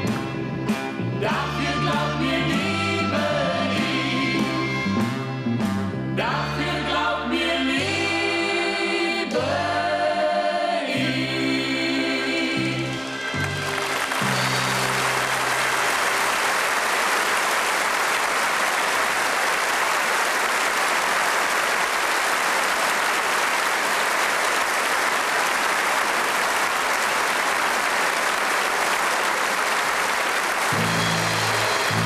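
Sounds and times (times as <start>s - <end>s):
audience applauding: 13.0s - 32.0s
band low notes: 30.7s - 32.0s.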